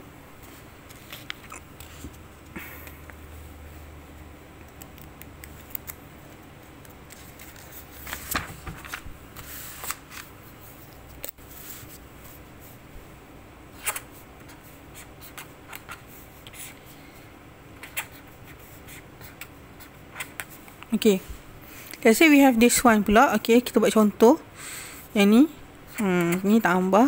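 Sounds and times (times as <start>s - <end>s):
paper rustling: 6.8s - 10.9s.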